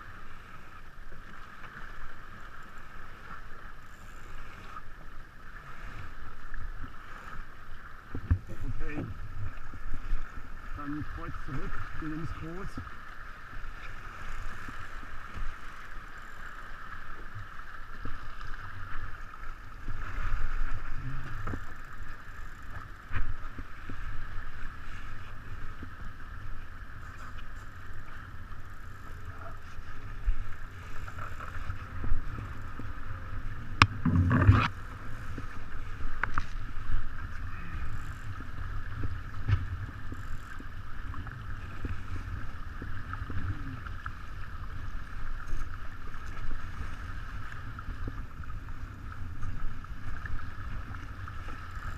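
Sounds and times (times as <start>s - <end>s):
water rushing along hull: 0.0s - 51.9s
boat clicks and knocks: 33.8s - 34.7s.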